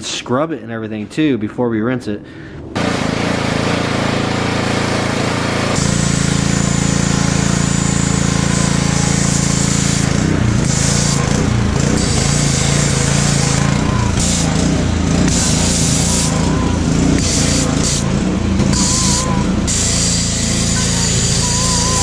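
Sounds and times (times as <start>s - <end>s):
pressure washer humming: 2.8s - 22.0s
foam cannon spraying hiss: 5.3s - 13.6s, 17.1s - 22.0s.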